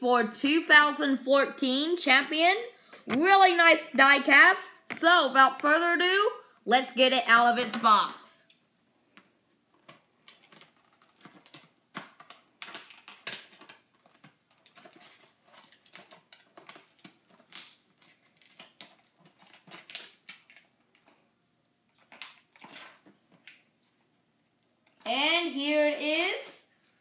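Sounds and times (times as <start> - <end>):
plastic packaging clicks and crinkles: 8.5 - 25.0.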